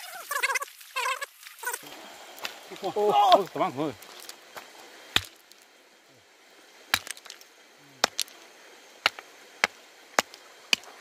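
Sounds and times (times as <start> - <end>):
river water rushing: 0.0 - 5.4
river stones clacking together: 1.4 - 5.7, 6.9 - 11.0.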